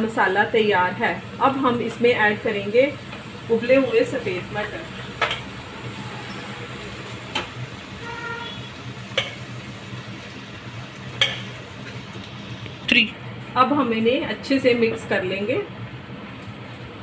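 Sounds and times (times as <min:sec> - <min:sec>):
masala sizzling in pan: 0:00.0 - 0:13.1
metal knocking against pan: 0:09.1 - 0:09.4, 0:11.2 - 0:11.5.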